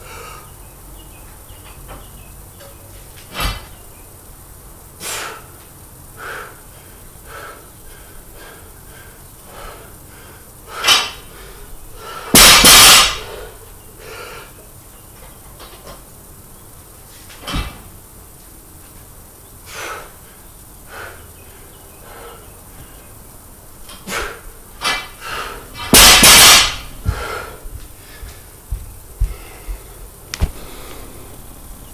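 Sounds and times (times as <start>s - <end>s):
barbell plates clattering on concrete: 12.4s - 13.4s, 25.8s - 26.9s
heavy breathing: 26.8s - 31.9s
soft thumps: 28.7s - 31.0s.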